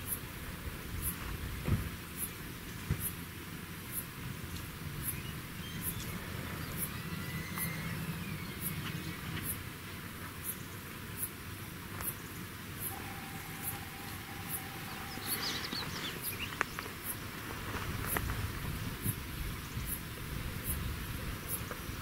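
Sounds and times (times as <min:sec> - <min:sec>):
small birds twittering: 0:05.0 - 0:09.7, 0:12.1 - 0:17.2
low steady rumble: 0:12.6 - 0:17.7
high insect chirp: 0:12.8 - 0:17.4.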